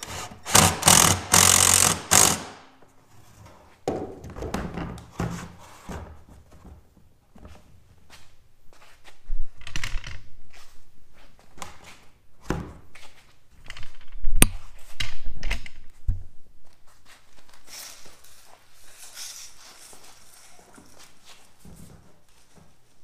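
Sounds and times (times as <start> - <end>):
soft rustling: 15.9 - 23.0.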